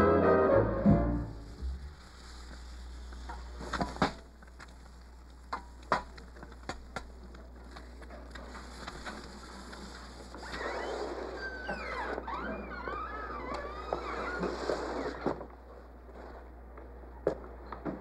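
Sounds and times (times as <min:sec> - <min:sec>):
fat popping and crackling: 0:01.5 - 0:11.1.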